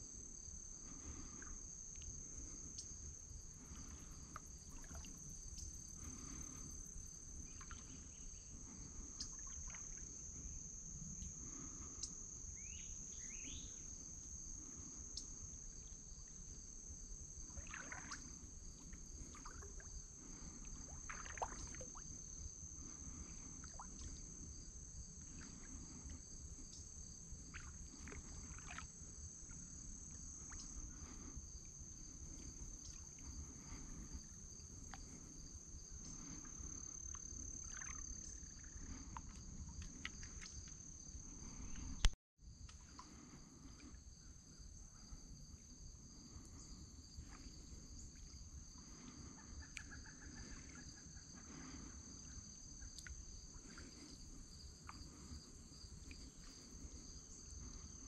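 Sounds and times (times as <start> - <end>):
crickets trilling: 0.0 - 58.0.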